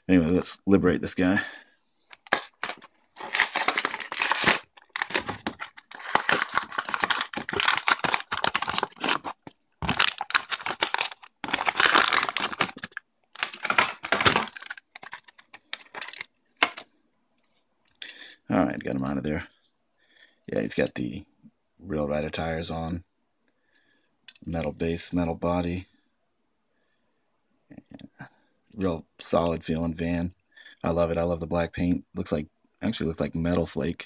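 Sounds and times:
plastic crinkling: 2.1s - 16.8s
cardboard ripping: 2.2s - 15.2s.

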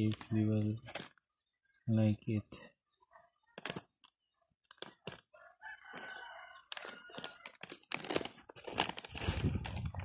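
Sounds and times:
plastic bag crinkling: 3.6s - 3.9s, 4.7s - 10.0s
rooster crowing: 5.4s - 7.6s.

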